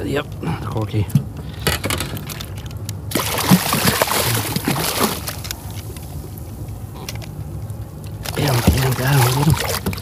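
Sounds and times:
fish thrashing and splashing: 2.1 - 5.9, 8.1 - 10.0.

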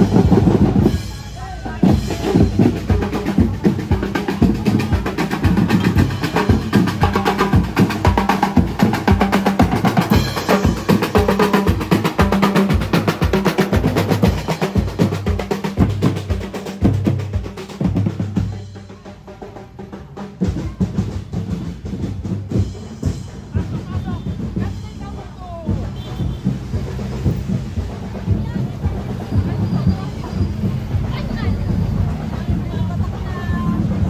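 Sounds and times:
pounding bass drum: 0.0 - 34.0.

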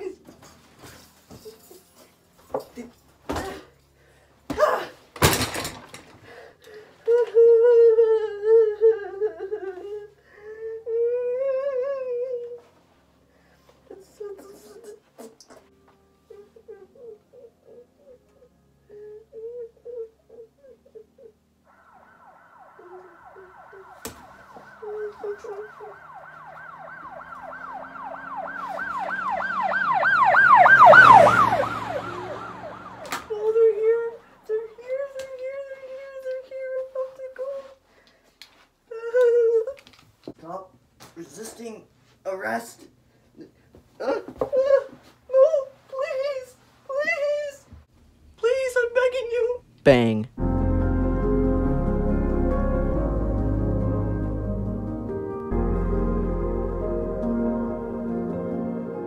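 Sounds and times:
high wavering wordless voice: 13.9 - 15.6, 22.8 - 24.0, 24.8 - 26.0, 33.3 - 37.8, 49.2 - 50.3
siren yelping: 21.7 - 34.3.

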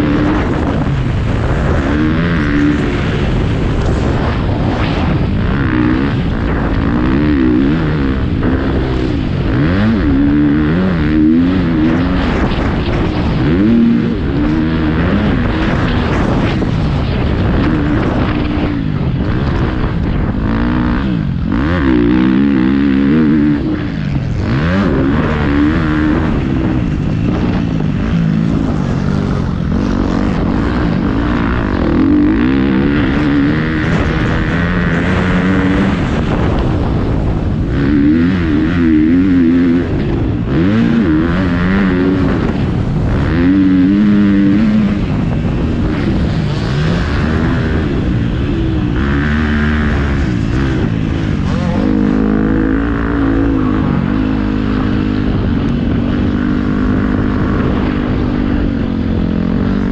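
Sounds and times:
motocross bike engine revving: 0.0 - 59.9.

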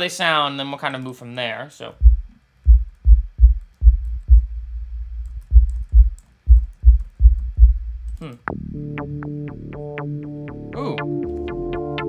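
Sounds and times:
deep synth bass thumps: 2.0 - 10.7
low synth hum: 2.0 - 12.0.

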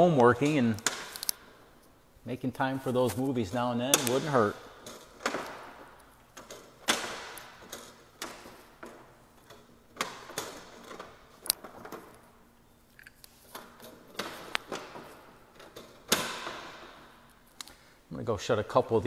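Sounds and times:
wooden shutters clacking shut: 0.0 - 1.6, 3.8 - 12.3, 13.5 - 17.2.

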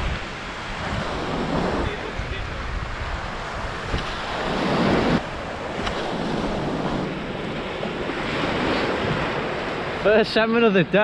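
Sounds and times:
surf breaking on sand: 0.0 - 11.0
wind buffeting microphone: 0.0 - 11.0.

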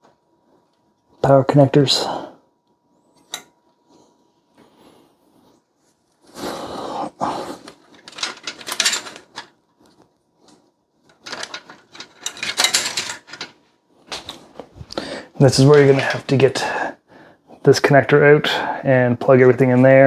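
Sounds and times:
rustling and scraping of cables: 3.0 - 16.8.

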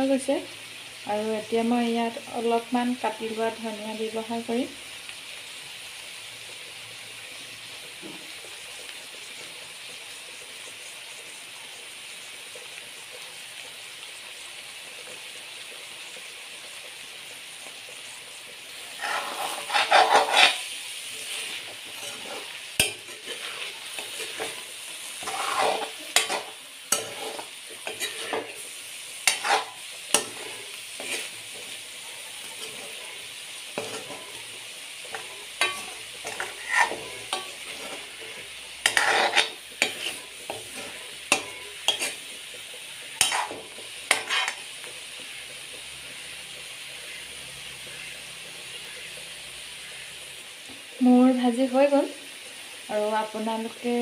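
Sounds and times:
food sizzling in a pan: 0.0 - 54.0
steel spoon scraping a pan: 18.7 - 45.4.

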